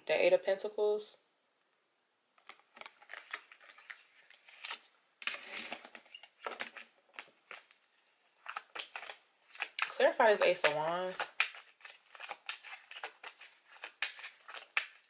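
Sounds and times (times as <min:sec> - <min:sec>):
cards being shuffled: 0:02.4 - 0:07.8, 0:08.4 - 0:15.0
cards clicking and rustling: 0:02.4 - 0:07.8, 0:08.4 - 0:15.0.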